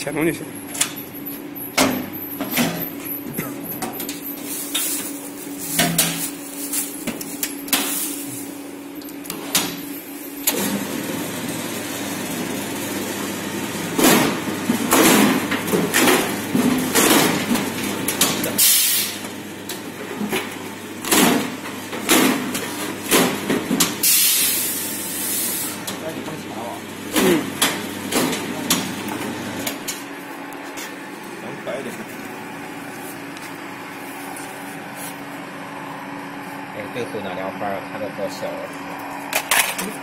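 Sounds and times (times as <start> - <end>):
meat bone cutter motor hum: 10.4 - 31.4.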